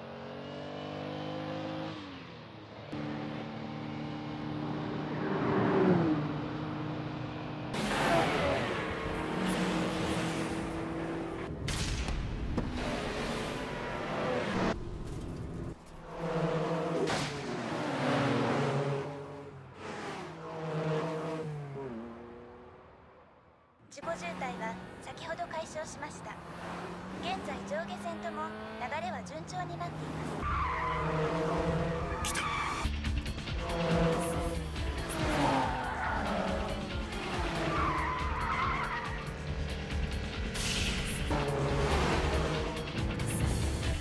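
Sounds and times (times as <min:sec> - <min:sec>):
car engine running hard: 0:24.1 - 0:32.2, 0:33.2 - 0:44.0.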